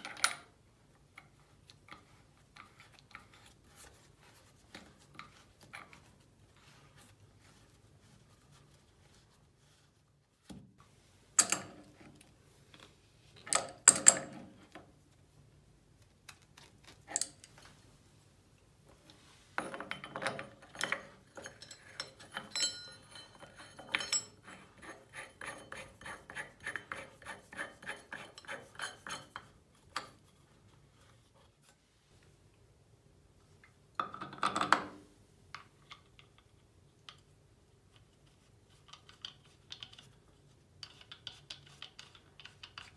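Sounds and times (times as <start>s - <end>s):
metal clinks and knocks: 19.6s - 24.5s.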